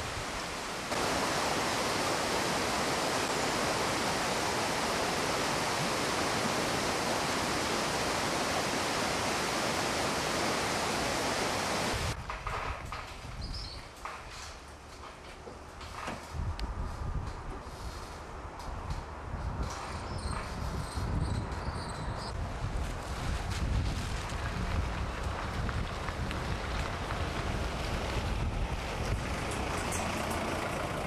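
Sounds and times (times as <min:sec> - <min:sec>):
rushing running water: 0:00.0 - 0:12.2.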